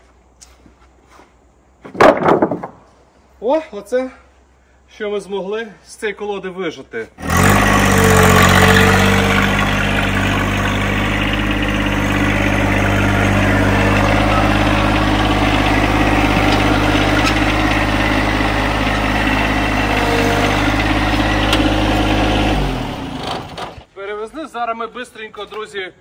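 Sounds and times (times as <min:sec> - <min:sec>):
tractor diesel engine running: 0:07.2 - 0:23.9.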